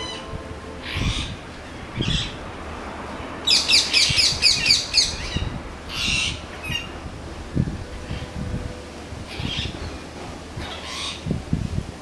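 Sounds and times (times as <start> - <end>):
parakeets calling: 0.8 - 2.4, 3.4 - 6.9, 9.3 - 9.9, 10.6 - 11.3.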